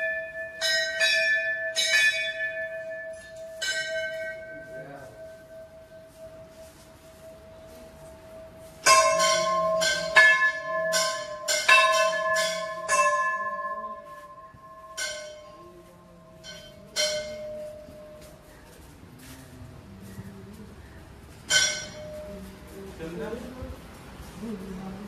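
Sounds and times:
temple bell strikes ringing: 0.0s - 18.4s, 21.5s - 22.5s.

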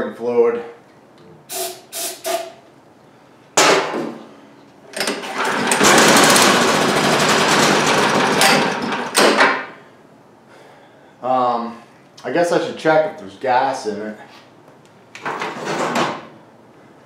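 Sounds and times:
aerosol spray hiss: 1.5s - 2.5s
engine pull-started: 5.0s - 9.2s
small engine running roughly: 5.2s - 9.1s.

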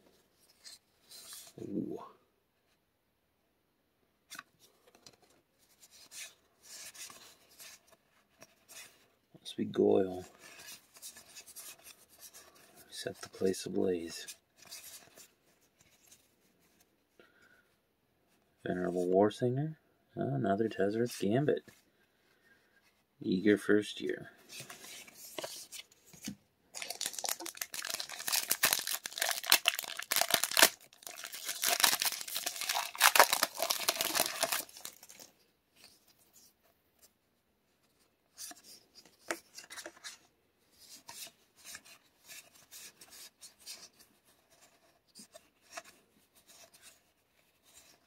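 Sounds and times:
trading cards rustling and tapping: 24.6s - 35.3s
foil wrapper tearing and crinkling: 26.8s - 35.3s.

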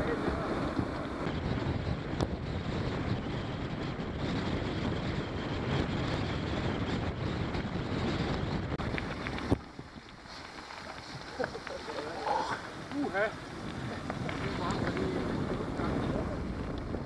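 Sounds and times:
wind buffeting microphone: 0.0s - 17.0s
tyres rumbling on dirt: 4.6s - 17.0s.

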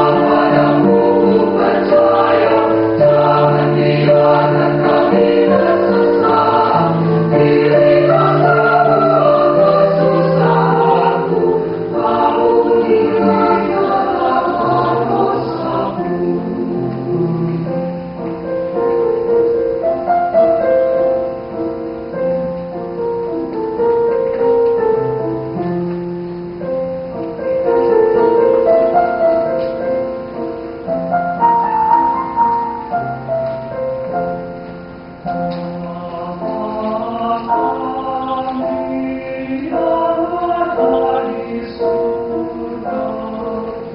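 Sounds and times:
mixed choir singing in harmony: 0.0s - 18.0s, 35.4s - 43.9s.

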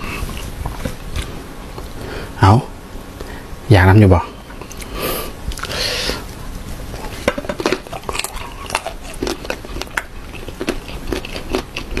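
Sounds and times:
crunchy mango being chewed: 4.6s - 6.3s, 6.9s - 12.0s.

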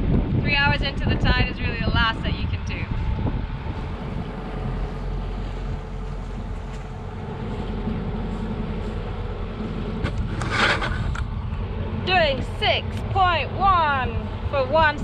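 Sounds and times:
boat engine drone: 0.0s - 15.0s
wind buffeting microphone: 0.0s - 15.0s.

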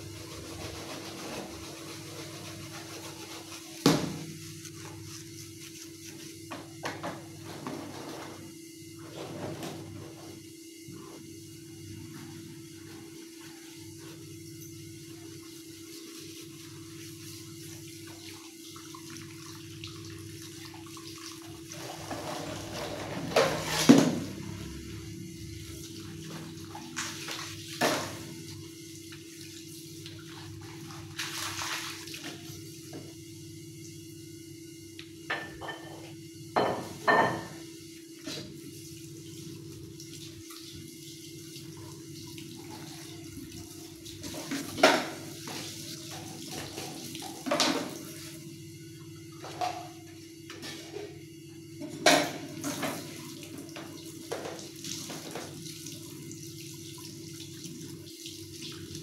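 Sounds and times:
tap water running into sink: 18.1s - 24.4s, 41.6s - 48.2s, 51.8s - 59.0s
dishes clattering: 35.3s - 36.0s, 36.6s - 37.6s.

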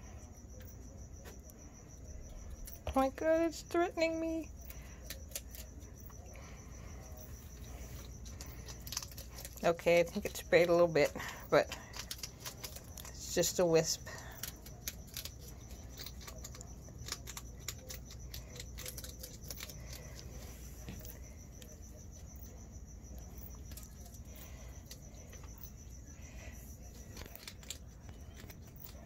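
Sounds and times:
cricket trilling: 0.0s - 29.0s
animals chewing clicks: 7.6s - 13.3s, 14.2s - 21.7s, 27.0s - 29.0s.

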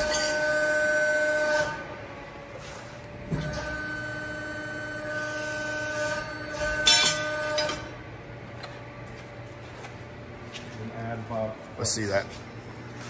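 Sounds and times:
press brake drive whine: 0.0s - 9.0s
sharp metal clack: 6.7s - 7.9s.

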